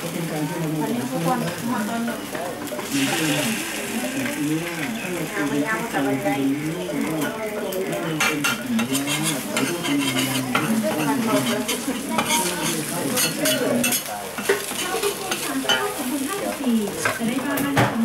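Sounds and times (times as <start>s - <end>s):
batter sizzling: 0.0s - 18.0s
metal spatula scraping griddle: 8.8s - 15.8s.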